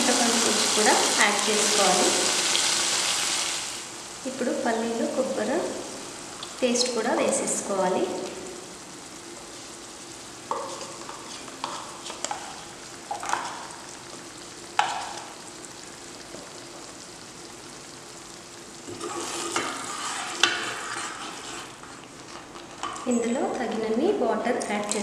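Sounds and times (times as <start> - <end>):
gravy sizzling in a pan: 0.0 - 25.0
ladle stirring thick gravy: 18.9 - 22.0.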